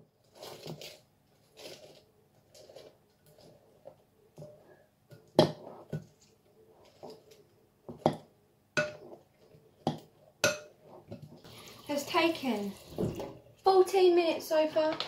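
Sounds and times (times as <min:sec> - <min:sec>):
spoon stirring popcorn: 0:00.1 - 0:11.5
spoon knocking on glass bowl: 0:09.9 - 0:10.7.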